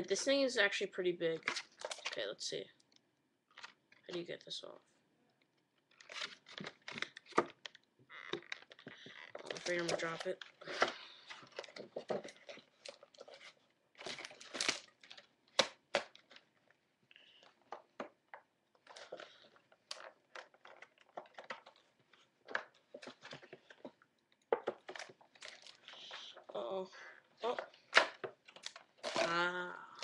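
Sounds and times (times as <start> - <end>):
packaging crackling and crinkling: 5.9 - 17.7, 18.8 - 26.6, 27.6 - 29.4.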